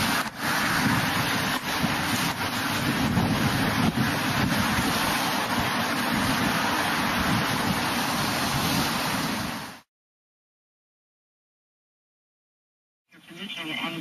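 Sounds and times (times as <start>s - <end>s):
floodwater rushing down channel: 0.0s - 9.9s.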